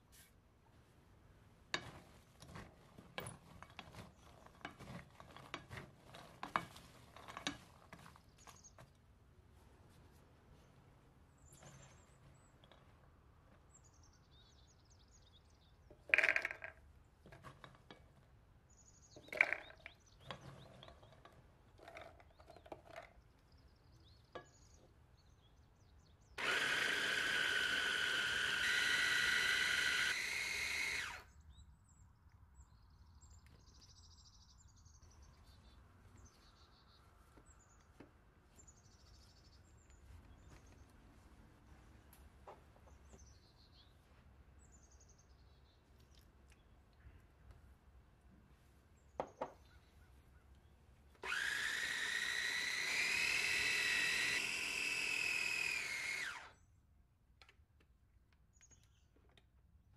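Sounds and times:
food processor motor whining: 26.4 - 31.3, 51.2 - 56.6.

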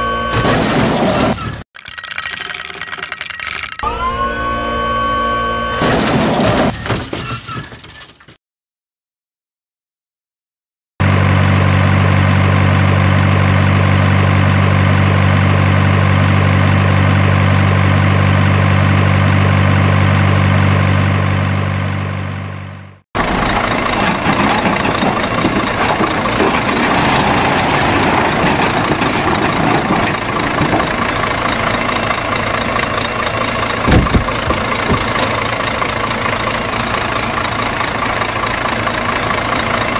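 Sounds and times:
rough noisy engine: 11.0 - 39.9
truck engine idling: 11.0 - 39.9
thump: 33.9 - 35.1.

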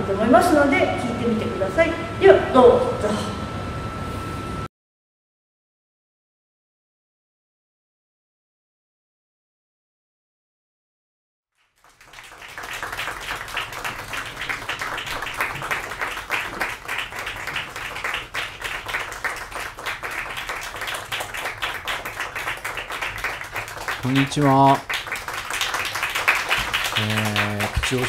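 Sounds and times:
audience applauding: 11.6 - 28.0.

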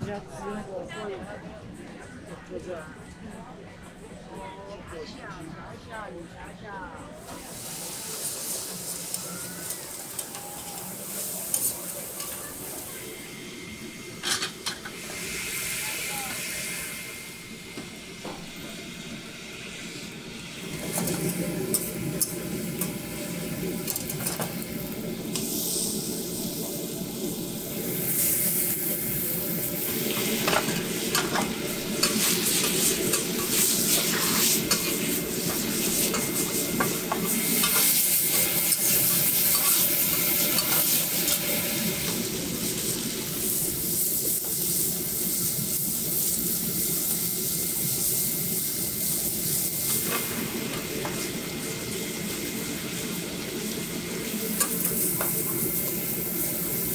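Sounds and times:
food sizzling on griddle: 7.2 - 56.9
metal spatula scraping griddle: 30.2 - 38.1.

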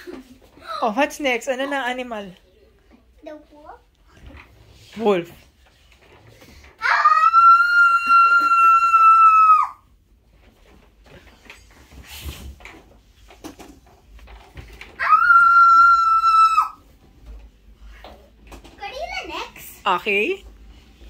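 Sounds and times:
boy imitating wolf howl: 6.8 - 9.8.

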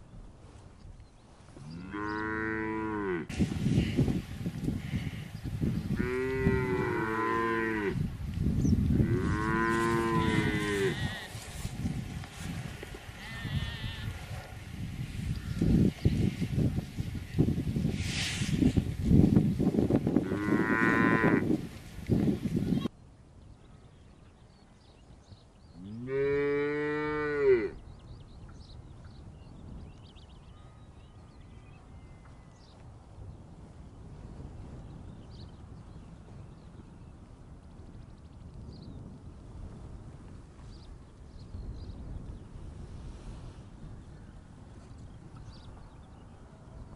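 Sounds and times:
cows mooing: 1.7 - 3.3, 5.9 - 8.0, 9.0 - 11.8, 20.2 - 21.5, 25.8 - 27.8.

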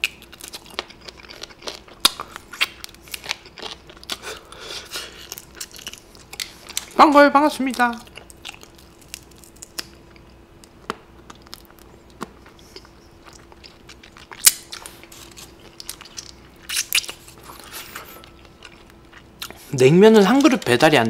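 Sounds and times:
faint steady hum: 0.0 - 21.0
person chewing and smacking: 0.0 - 21.0
crisp crunches: 7.6 - 10.3.

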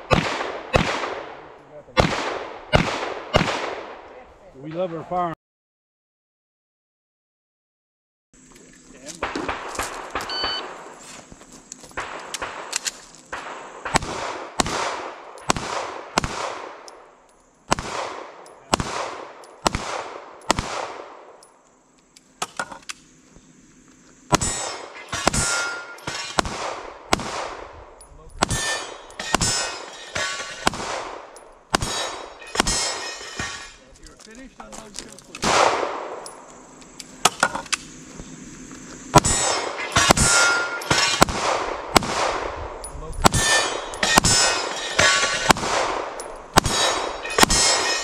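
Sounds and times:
pistol shots echoing: 0.0 - 4.1, 9.2 - 10.9, 12.0 - 17.1, 17.7 - 21.4, 24.3 - 27.7, 28.4 - 33.6, 35.4 - 36.4, 39.1 - 42.6, 43.2 - 48.0
steel targets clanging: 24.3 - 26.4, 28.0 - 33.8, 39.2 - 41.3, 42.8 - 48.0.

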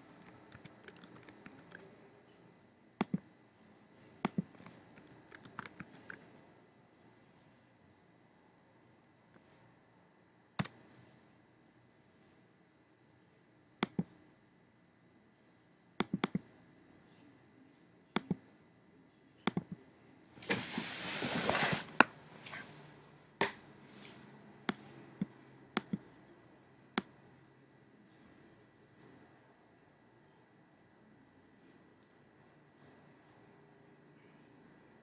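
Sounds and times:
mouse and keyboard clicks: 0.1 - 1.8, 4.2 - 6.2, 13.8 - 14.1, 16.0 - 16.5, 19.5 - 19.8, 24.7 - 26.0.

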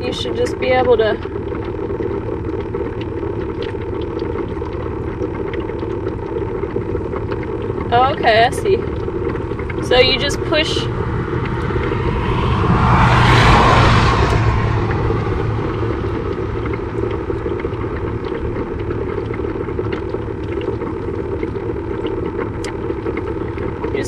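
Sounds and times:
wind rumble on microphone: 7.8 - 19.5.

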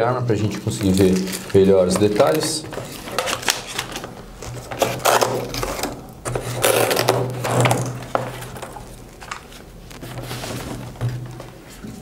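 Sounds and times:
rifle scraping cardboard box: 4.7 - 8.2
velcro straps ripping: 6.6 - 7.8.

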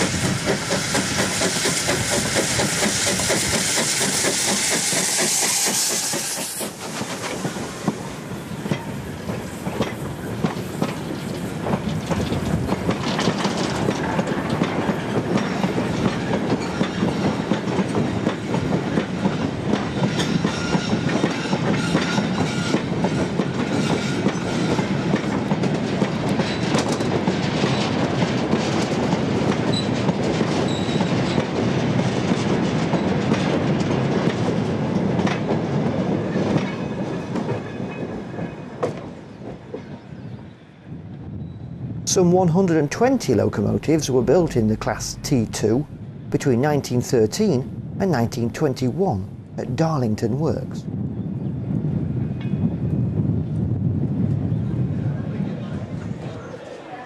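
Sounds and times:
train wheels clattering over rail joints: 0.0 - 40.0.

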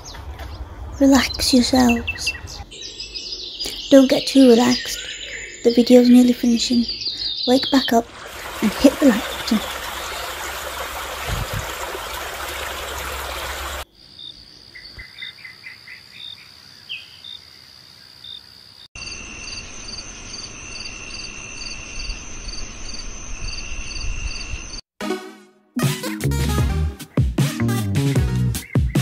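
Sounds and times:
crickets chirping: 6.5 - 24.8
rushing stream water: 8.0 - 13.9
high insect trill: 18.2 - 24.8.

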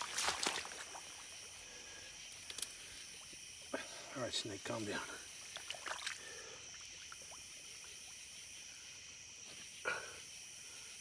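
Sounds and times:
gig jabbing into mud and water: 0.0 - 1.3, 5.4 - 7.5
night insects chirring: 0.0 - 11.0.

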